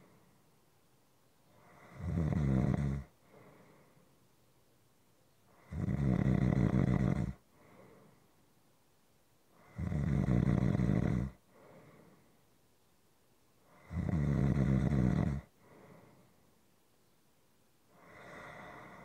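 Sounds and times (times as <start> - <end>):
person snoring: 1.5 - 3.6, 5.6 - 7.4, 9.6 - 11.4, 13.7 - 16.1, 18.0 - 19.0
soft breath out: 3.2 - 4.2, 7.5 - 8.4, 11.4 - 12.5, 15.6 - 16.6, 17.9 - 19.0.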